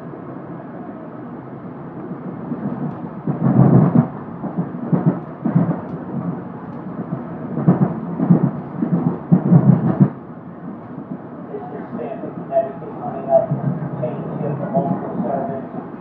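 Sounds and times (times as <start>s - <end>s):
train rumble on rails: 0.0s - 16.0s.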